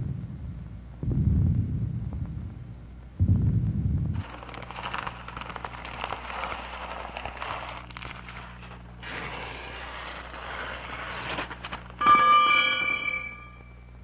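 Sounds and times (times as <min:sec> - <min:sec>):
steady low hum: 0:00.0 - 0:14.0
struck ringing tone: 0:12.0 - 0:14.0.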